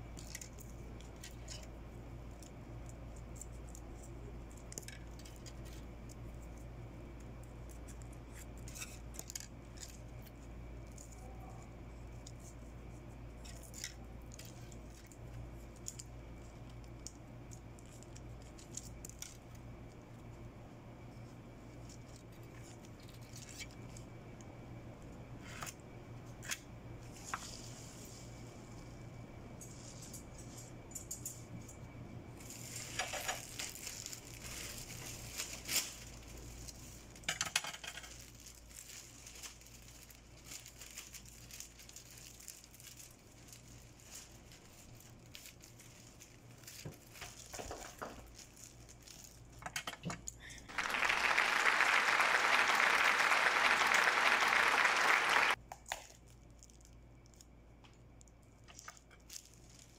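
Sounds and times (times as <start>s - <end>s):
foil-wrapped sweets rustling: 0.2s - 19.6s, 21.7s - 24.1s, 32.3s - 49.6s, 50.7s - 59.9s
small crinkles and taps: 46.6s - 50.3s, 55.7s - 59.9s.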